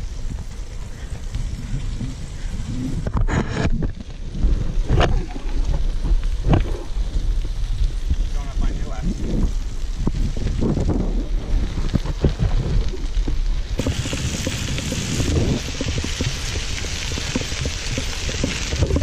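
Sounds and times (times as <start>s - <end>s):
bicycle tyres on gravel: 0.0s - 19.0s
wind rumble on microphone: 0.0s - 19.0s
bright hiss: 13.7s - 19.0s.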